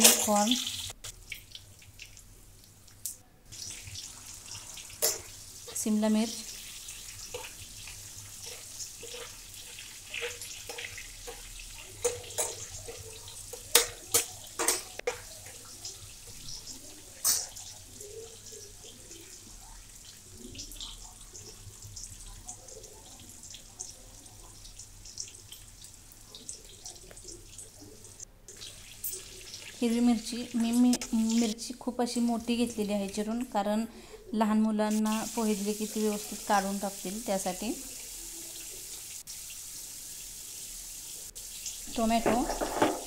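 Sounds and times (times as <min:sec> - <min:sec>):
vegetables sizzling in oil: 0:00.0 - 0:33.7, 0:34.5 - 0:43.0
metal spatula scraping pan: 0:07.2 - 0:15.5, 0:42.2 - 0:43.0.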